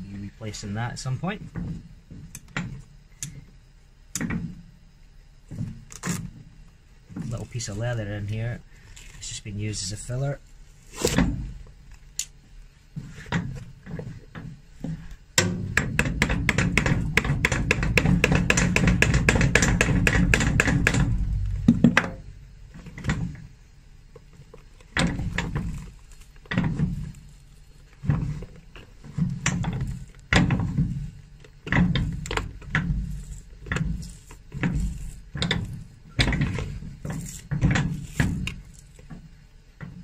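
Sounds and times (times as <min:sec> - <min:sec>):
knocks and prying: 0:04.2 - 0:04.6, 0:13.0 - 0:23.5, 0:24.2 - 0:27.3, 0:27.9 - 0:40.0.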